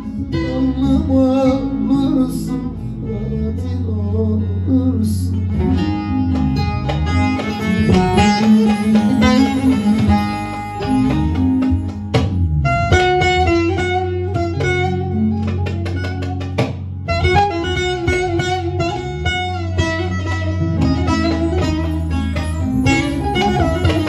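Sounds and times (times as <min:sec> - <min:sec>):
low bass accompaniment: 0:00.0 - 0:24.0
plucked long-necked lute: 0:05.5 - 0:24.0.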